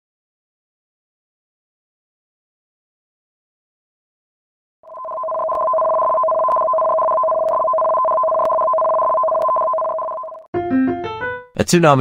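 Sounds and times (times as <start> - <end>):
two-pitch electronic alert tone: 4.9 - 10.4.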